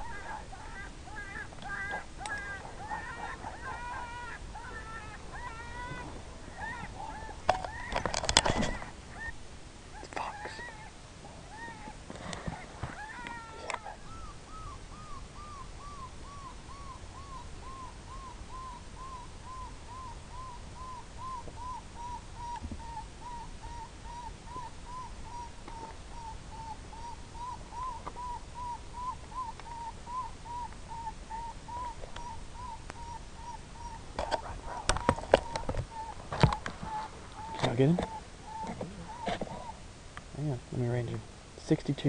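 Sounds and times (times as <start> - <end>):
electronic prey distress call: 0.0 - 9.4.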